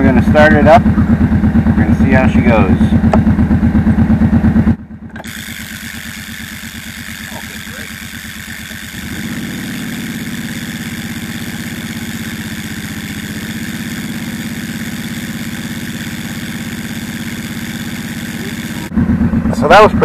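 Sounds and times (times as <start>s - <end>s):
atv engine running: 0.0s - 20.0s
high whine: 5.1s - 20.0s.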